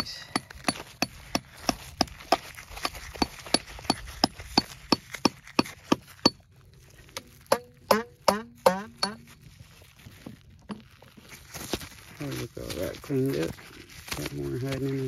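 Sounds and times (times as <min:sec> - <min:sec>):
hammer strikes with metallic ring: 0:07.5 - 0:09.2.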